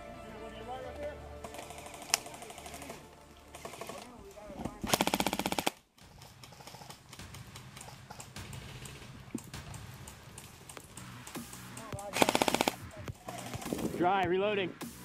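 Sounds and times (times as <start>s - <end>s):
airsoft gun full-auto burst: 4.8s - 7.2s, 12.1s - 13.9s.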